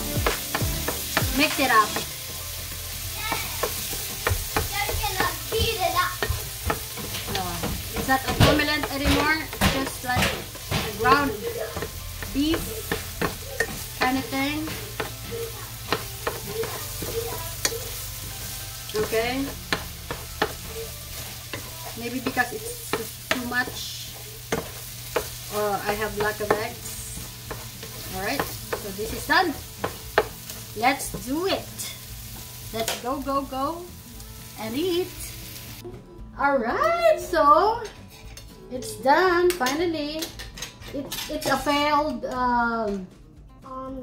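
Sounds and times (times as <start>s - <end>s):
spatula scraping frying pan: 0.0s - 33.0s
food sizzling: 0.0s - 35.9s.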